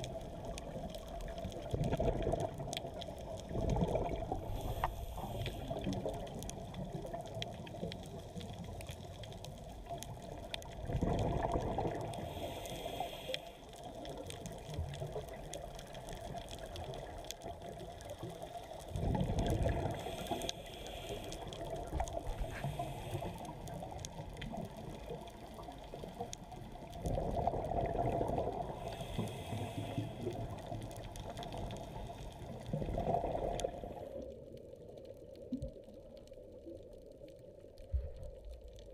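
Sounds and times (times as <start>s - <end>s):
exhaled bubbles rushing: 0.0s - 4.8s, 10.7s - 12.2s, 18.9s - 20.0s, 24.4s - 28.8s, 32.4s - 34.2s
underwater wash: 0.0s - 38.9s
regulator hiss: 4.5s - 6.0s, 12.3s - 13.6s, 19.9s - 21.5s, 22.4s - 23.6s, 28.8s - 30.3s.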